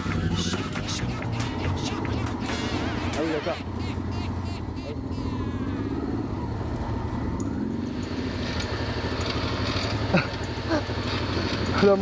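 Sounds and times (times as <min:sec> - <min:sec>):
motorcycle engine running slowly: 0:00.0 - 0:12.0.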